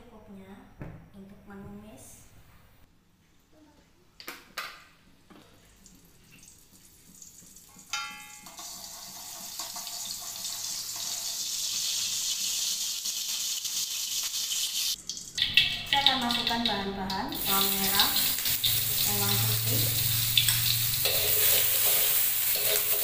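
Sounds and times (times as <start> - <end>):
oil sizzling in wok: 5.8 - 23.0
metal spatula clanking on wok: 20.3 - 23.0.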